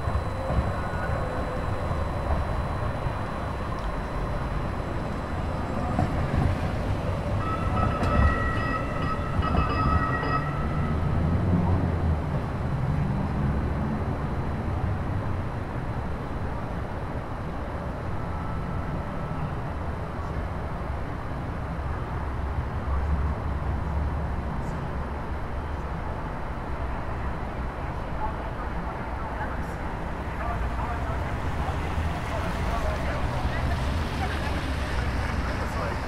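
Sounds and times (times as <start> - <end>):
high-pitched tone: 0.0 - 11.1
light rail train rumbling: 0.0 - 36.0
street traffic: 0.0 - 36.0.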